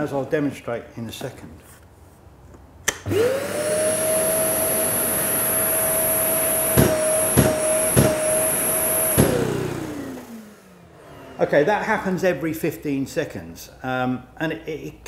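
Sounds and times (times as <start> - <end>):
extractor whining: 2.9 - 11.8
motor winding down: 3.0 - 11.6.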